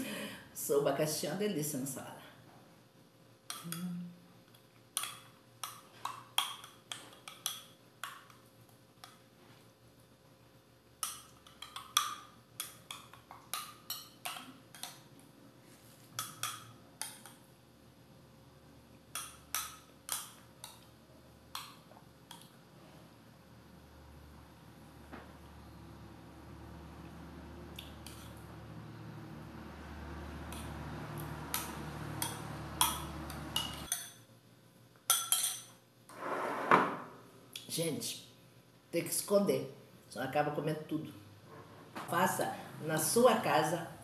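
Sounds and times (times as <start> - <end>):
spoon clinking against glass: 35.1 - 35.8.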